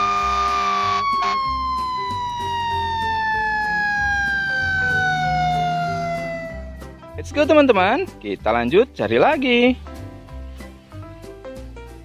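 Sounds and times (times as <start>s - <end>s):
fire engine siren: 0.0s - 6.9s.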